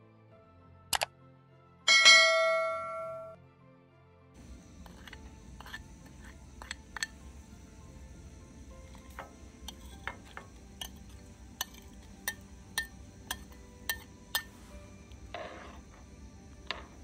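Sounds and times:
metal spoon clinking on plate: 0:04.8 - 0:07.2, 0:08.8 - 0:14.6.

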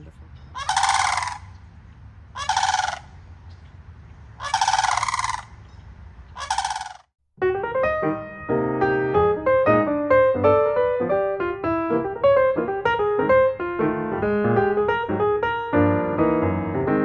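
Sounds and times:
cranes rattling calls: 0:00.5 - 0:03.6, 0:04.2 - 0:07.1
piano music: 0:07.4 - 0:17.0.

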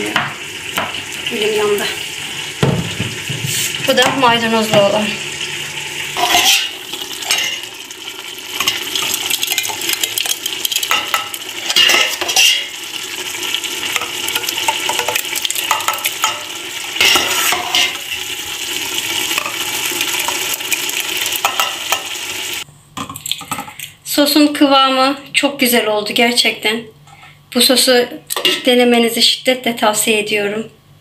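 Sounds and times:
sauce sizzling: 0:00.0 - 0:22.7
loud knocks on pot: 0:02.6 - 0:04.2
saucepan scraping in metal pot: 0:06.1 - 0:07.6, 0:17.0 - 0:18.3.

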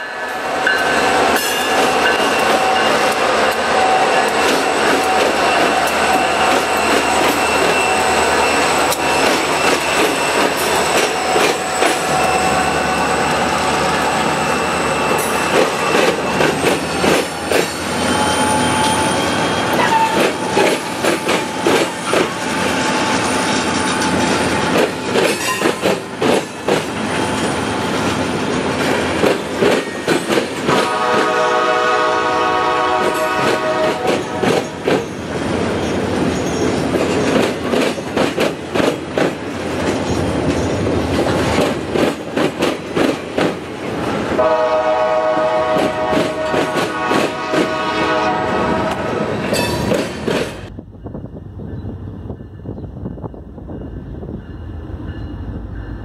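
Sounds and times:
train wheels squealing: 0:00.0 - 0:28.5, 0:34.4 - 0:38.1
diesel locomotive engines running: 0:00.0 - 0:56.0
train cars clacking over rail joints: 0:00.4 - 0:50.7
train horn: 0:18.1 - 0:21.0, 0:30.7 - 0:34.5, 0:44.4 - 0:49.4.

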